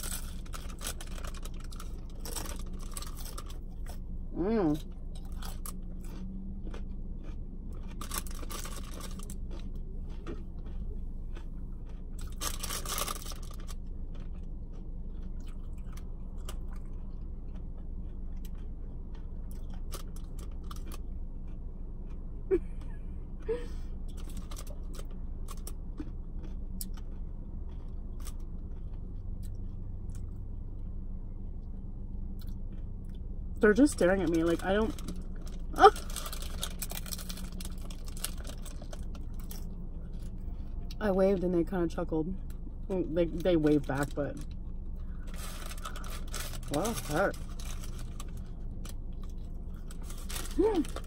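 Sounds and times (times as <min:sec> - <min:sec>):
chewing and crunching: 0:00.0 - 0:41.0, 0:42.4 - 0:51.0
low car hum: 0:00.0 - 0:51.0
paper wrapper rustling: 0:35.8 - 0:39.1, 0:45.3 - 0:48.5, 0:49.9 - 0:51.0.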